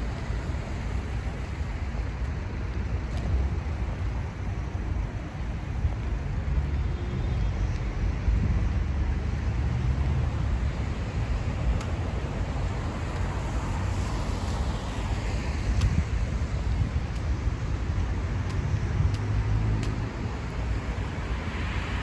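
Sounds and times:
road traffic rumble: 0.0 - 22.0
faint sharp ticks: 11.2 - 12.0, 15.7 - 16.0, 18.4 - 20.1.

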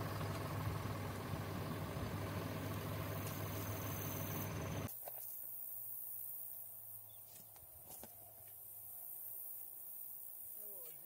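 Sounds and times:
low hum: 0.0 - 4.9
tractor engine running: 0.0 - 4.9.

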